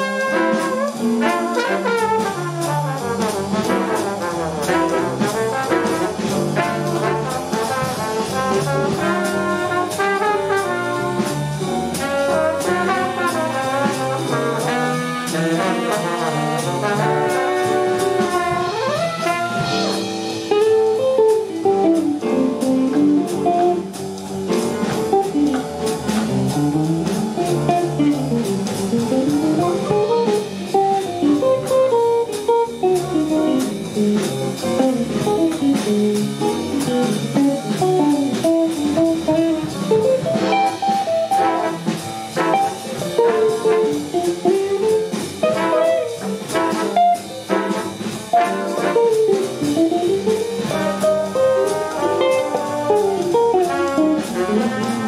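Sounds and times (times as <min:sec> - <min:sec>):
horn section playing: 0:00.0 - 0:20.7, 0:39.2 - 0:55.0
double bass: 0:00.0 - 0:55.0
drums: 0:00.0 - 0:55.0.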